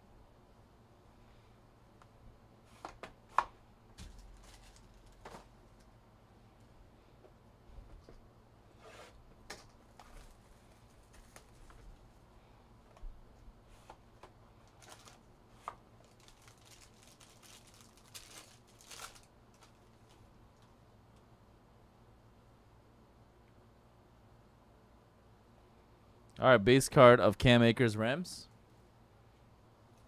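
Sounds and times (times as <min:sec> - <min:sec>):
cards rustling and crinkling: 0:04.0 - 0:05.6, 0:09.6 - 0:12.0, 0:13.7 - 0:20.3.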